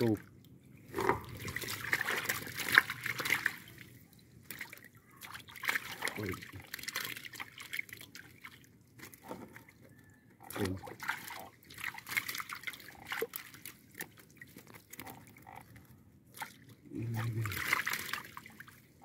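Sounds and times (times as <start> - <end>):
water splashing and dripping: 0.0 - 9.7, 10.4 - 19.0.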